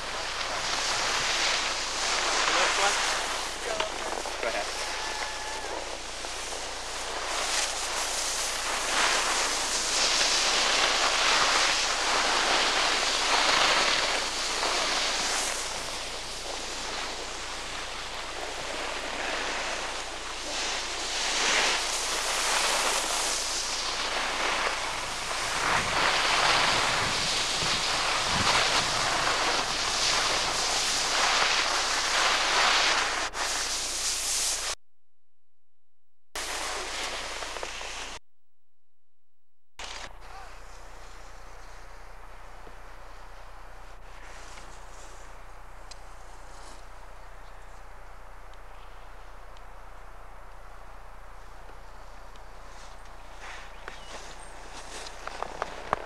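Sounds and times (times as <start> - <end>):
wind on microphone: 0.0 - 33.9
skis hissing over snow: 0.0 - 34.8, 36.4 - 38.2, 39.8 - 47.8, 51.4 - 56.0.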